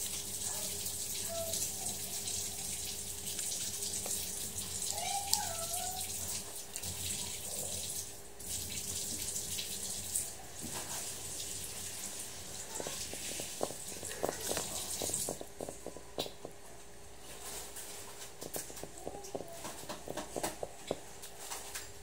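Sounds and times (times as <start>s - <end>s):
running water from tap: 0.0s - 15.7s.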